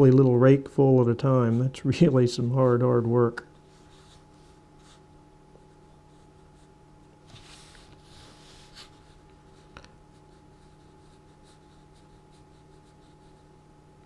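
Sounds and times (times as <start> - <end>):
brush swishing on paper: 3.6 - 5.0, 5.8 - 13.5.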